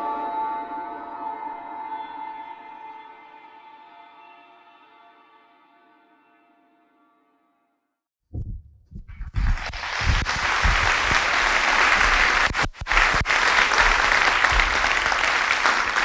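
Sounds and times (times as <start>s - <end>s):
audience applauding: 9.2s - 16.0s.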